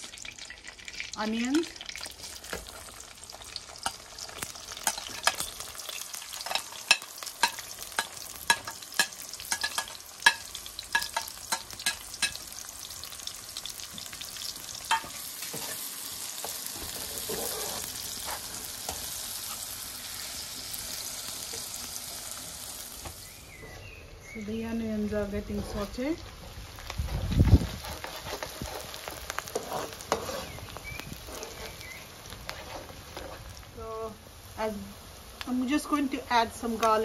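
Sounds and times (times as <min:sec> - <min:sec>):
onions frying in hot oil: 0:00.0 - 0:37.0
metal spoon stirring: 0:04.7 - 0:12.4, 0:27.8 - 0:31.9.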